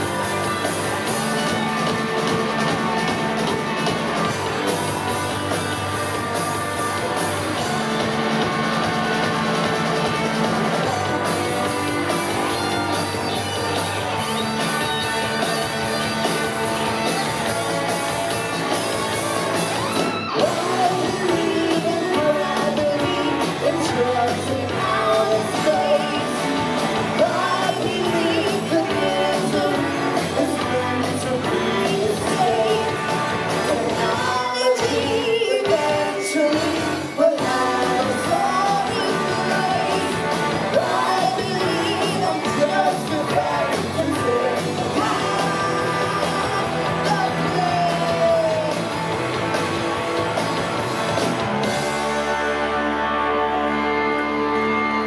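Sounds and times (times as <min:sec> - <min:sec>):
bass guitar: 0:00.0 - 0:55.0
drums: 0:00.0 - 0:55.0
electric guitars: 0:00.0 - 0:55.0
person singing: 0:20.3 - 0:48.9.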